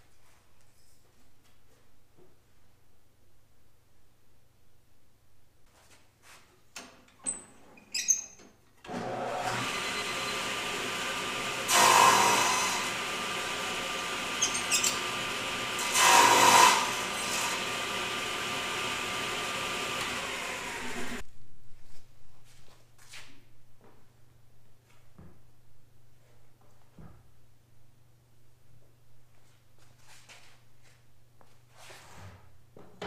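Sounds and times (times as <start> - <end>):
saw blade cutting wood: 8.9 - 21.2
table saw running: 8.9 - 21.2.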